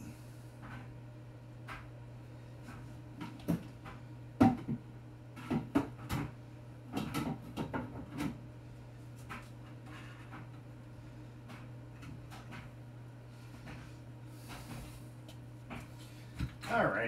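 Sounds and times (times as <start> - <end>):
steady low hum: 0.0 - 17.0
objects knocking and clattering: 4.4 - 4.8, 5.4 - 8.4.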